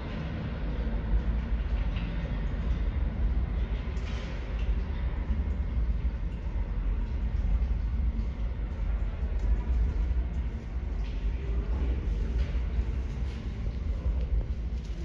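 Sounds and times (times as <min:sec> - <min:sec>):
subway train rumbling: 0:00.0 - 0:15.0.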